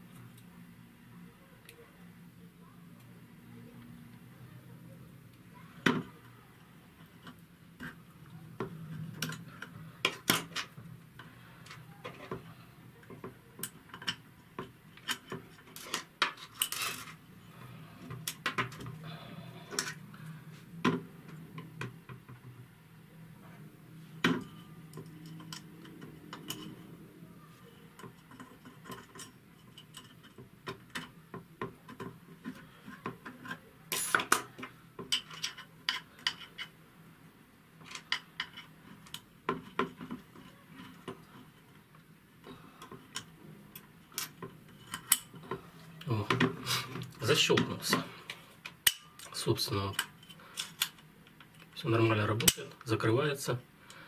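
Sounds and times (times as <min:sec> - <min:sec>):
small metal parts clicking: 0:13.0 - 0:17.2, 0:24.4 - 0:26.9, 0:27.8 - 0:31.2, 0:31.8 - 0:36.8, 0:42.8 - 0:45.6.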